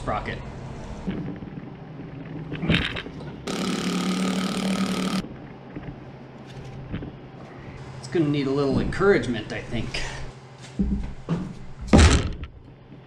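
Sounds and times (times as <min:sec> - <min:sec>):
power tool spinning bolt: 0:03.5 - 0:05.2.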